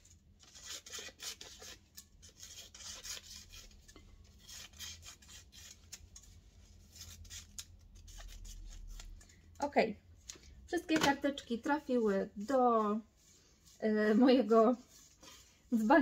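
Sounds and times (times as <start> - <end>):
scissors snipping paper: 6.9 - 9.2.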